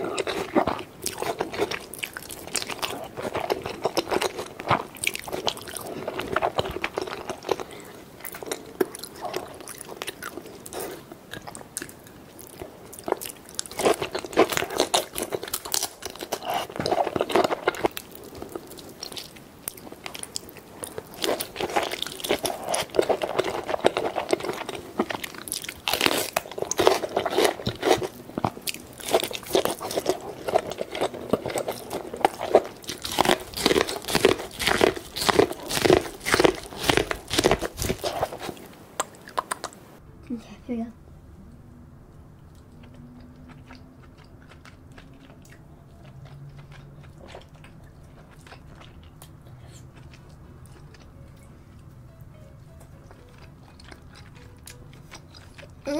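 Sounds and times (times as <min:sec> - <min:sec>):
wet chewing: 0:00.0 - 0:40.0, 0:42.4 - 0:55.9
biting corn on the cob: 0:31.2 - 0:39.8.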